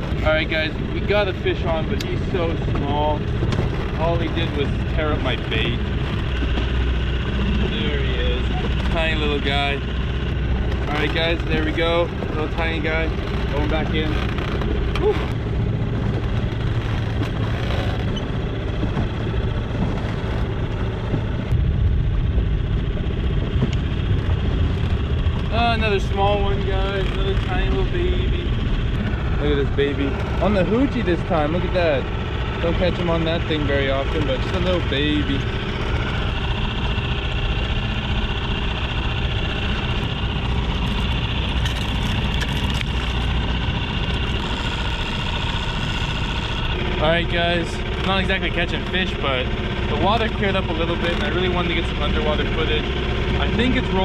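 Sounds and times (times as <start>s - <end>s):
outboard motor running: 0.0s - 54.0s
water splashing against hull: 0.0s - 54.0s
wind rush: 18.2s - 31.1s.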